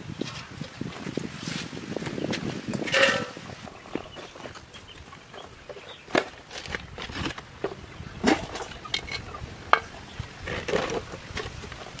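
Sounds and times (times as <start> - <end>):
metal pots clinking: 2.8 - 3.4.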